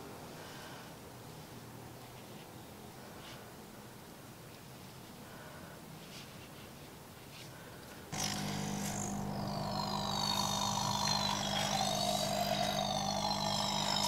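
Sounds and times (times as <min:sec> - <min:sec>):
electric air pump humming: 0:08.1 - 0:14.0
high wavering whistle: 0:08.2 - 0:14.0.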